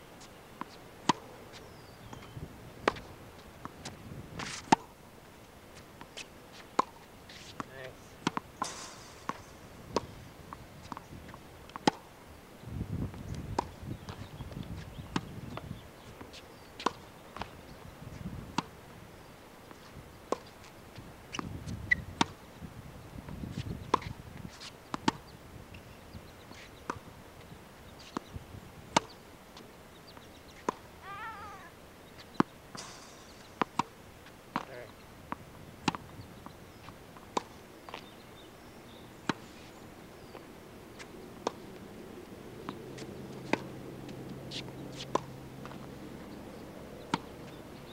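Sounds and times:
tennis ball bouncing on court: 0.6s - 4.9s, 6.0s - 12.1s, 13.3s - 15.6s, 16.2s - 17.6s, 23.6s - 25.3s, 26.6s - 27.0s, 28.9s - 38.2s, 38.9s - 39.4s, 40.3s - 41.8s, 42.6s - 47.9s
racket hitting tennis ball: 2.2s - 4.9s, 6.2s - 12.1s, 28.9s - 34.7s, 43.0s - 46.0s.

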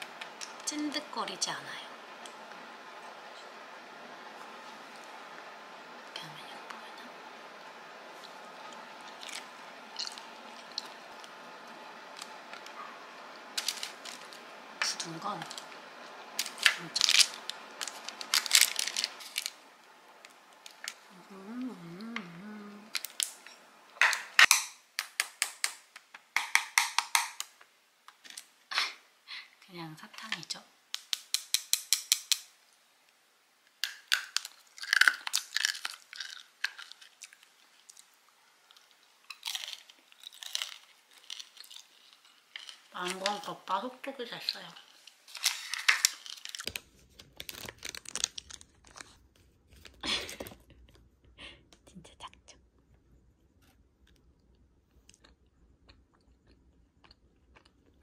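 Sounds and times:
crisp crunching: 8.1s - 21.2s, 22.8s - 24.5s, 33.8s - 43.5s, 44.4s - 50.1s
plastic wrappers crinkling: 8.2s - 21.2s, 22.9s - 24.6s, 33.8s - 50.5s.

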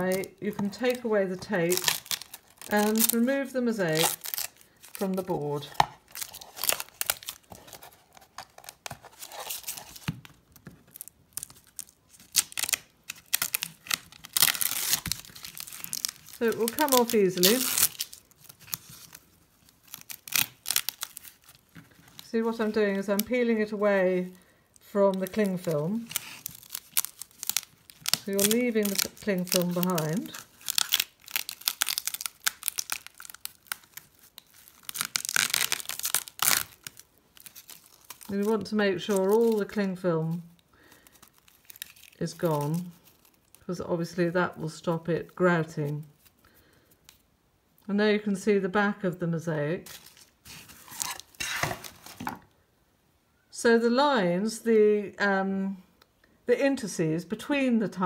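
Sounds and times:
tape and film peeling crackle: 0.0s - 47.3s, 49.8s - 52.5s.

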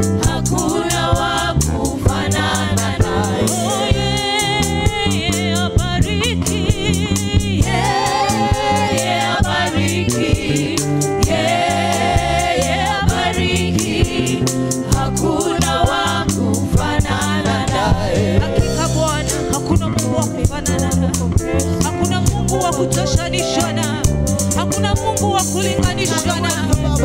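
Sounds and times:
band with bass and drums: 0.0s - 27.0s
backing singers: 0.2s - 5.0s, 7.4s - 19.4s
woman singing into a microphone: 2.0s - 10.9s, 19.6s - 24.0s, 24.7s - 27.0s.

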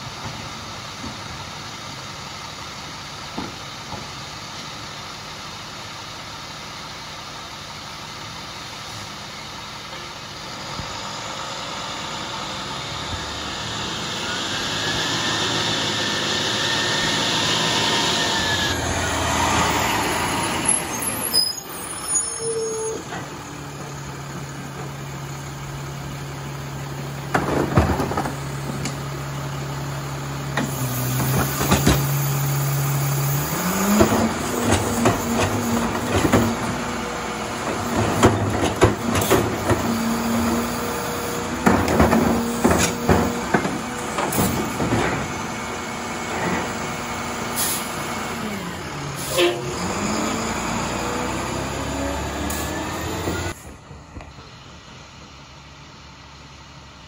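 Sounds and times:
garbage truck diesel engine: 0.0s - 57.0s
clanks and bangs of trash cart: 27.2s - 29.0s, 30.6s - 32.2s, 33.8s - 36.8s, 37.6s - 40.4s, 41.6s - 45.5s.

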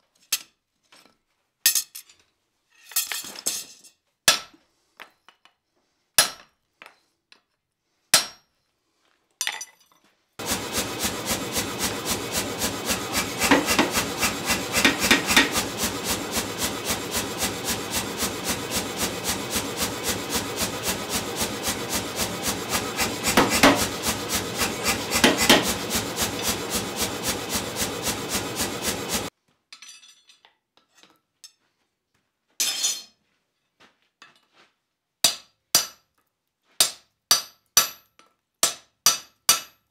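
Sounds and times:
power hammer blows: 10.4s - 29.3s
hand hammer striking anvil: 36.8s - 39.8s.

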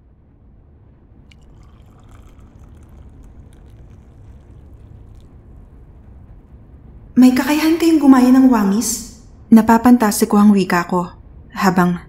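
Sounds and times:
low rumble: 0.0s - 12.0s
drink pouring into cup: 1.3s - 6.4s.

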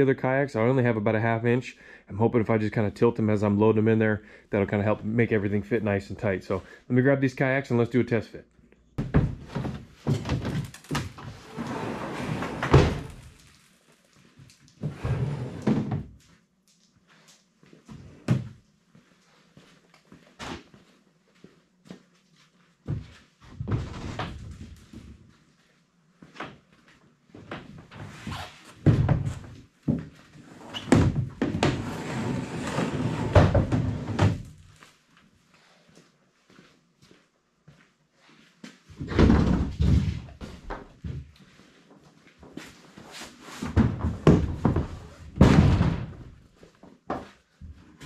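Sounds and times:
kayak scraping on metal rack: 11.4s - 13.0s.

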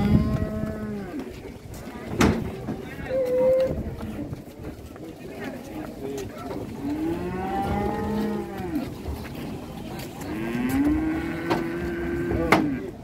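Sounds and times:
cattle mooing: 6.8s - 8.9s, 10.3s - 12.9s.

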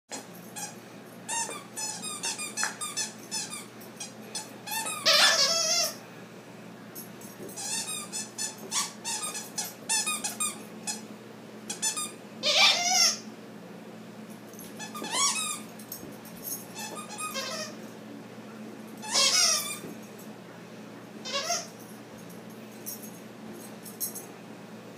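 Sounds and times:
squeaky toy squeaking: 1.3s - 4.1s, 4.7s - 6.0s, 7.6s - 11.0s, 11.7s - 13.2s, 14.8s - 15.6s, 16.8s - 17.8s, 19.0s - 19.8s, 21.3s - 21.7s
squeaky toy squeals: 4.7s - 6.0s, 11.7s - 13.2s, 14.8s - 15.6s, 16.8s - 17.8s, 19.0s - 19.8s, 21.3s - 21.7s.

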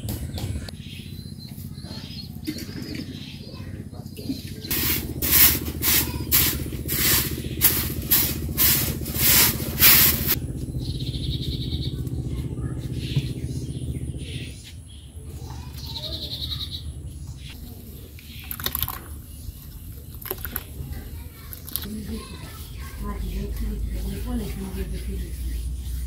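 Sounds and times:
broom sweeping earthen floor: 4.7s - 10.4s, 21.9s - 26.0s.

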